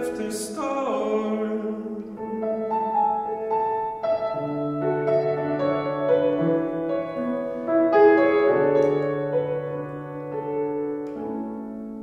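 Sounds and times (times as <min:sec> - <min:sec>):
keyboard playing slow chords: 0:02.0 - 0:12.0.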